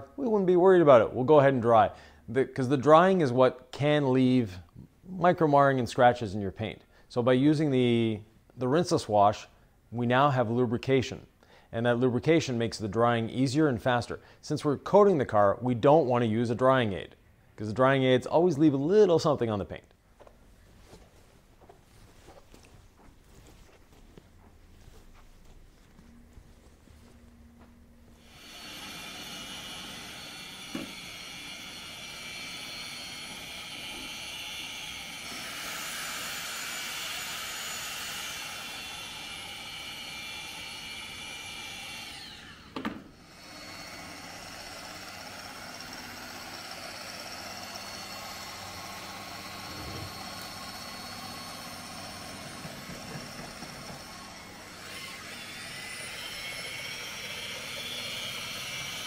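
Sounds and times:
machine polisher motor whine: 25.9s - 59.0s.

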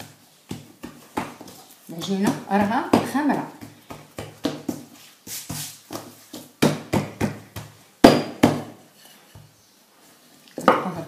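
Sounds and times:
hands slapping dough: 0.0s - 8.8s.

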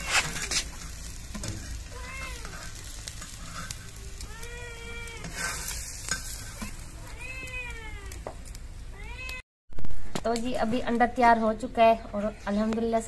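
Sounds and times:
cat meowing: 1.8s - 2.8s, 4.0s - 5.4s, 7.0s - 8.2s, 9.0s - 9.4s.

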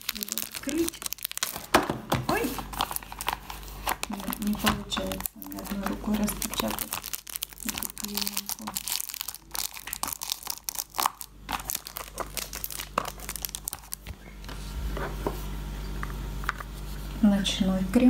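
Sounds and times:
plastic shrink-wrap crinkling and tearing: 0.0s - 14.2s.

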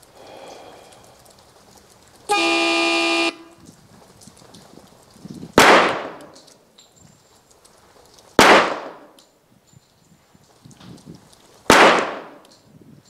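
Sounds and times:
pistol shot: 5.6s - 6.4s, 8.4s - 9.2s, 11.7s - 12.4s.

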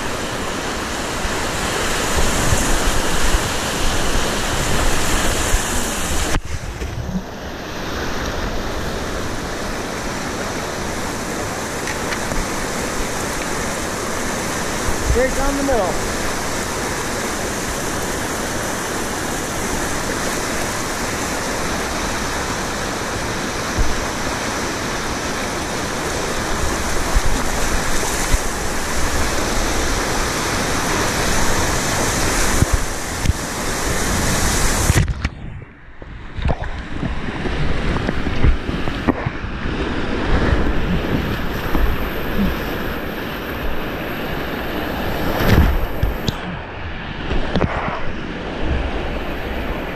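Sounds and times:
whitewater rapids rushing: 0.0s - 35.0s, 37.6s - 49.9s
muffled underwater thumps: 45.4s - 46.4s.

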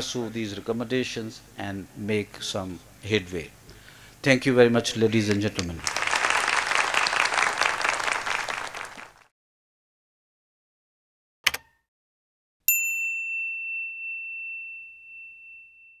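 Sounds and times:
audience applause: 5.8s - 9.3s
bell-like notification ding: 12.7s - 16.0s.

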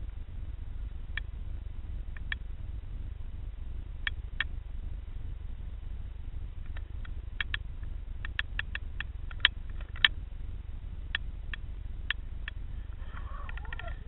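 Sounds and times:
steady low rumble: 0.0s - 14.0s
underwater sharp clicks: 6.6s - 7.6s, 8.2s - 10.2s.

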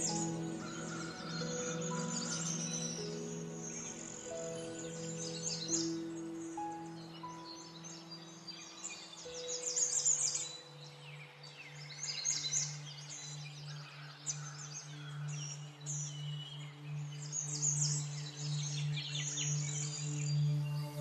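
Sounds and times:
low drone: 0.0s - 7.1s, 19.5s - 21.0s
birdsong chirping: 0.0s - 21.0s.

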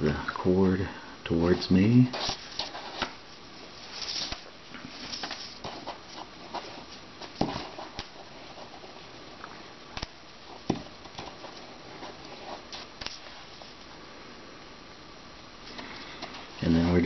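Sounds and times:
cord rustling and rubbing: 1.5s - 9.4s, 10.0s - 13.9s.

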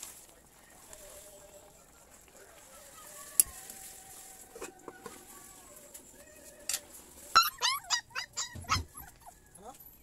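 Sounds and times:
dog yelping and whining: 7.3s - 9.4s.

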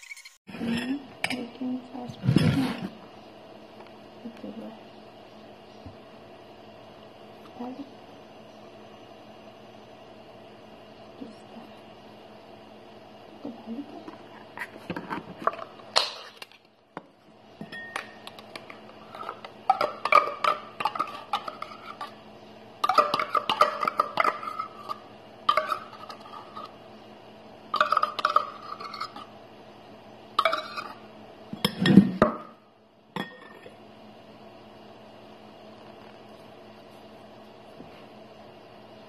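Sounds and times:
spoon clinking on glass bowl: 17.6s - 18.2s.

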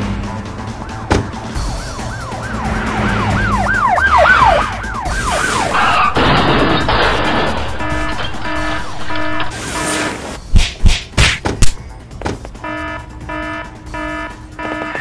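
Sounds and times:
police siren yelp: 0.6s - 6.6s, 7.2s - 9.9s, 12.6s - 15.0s.

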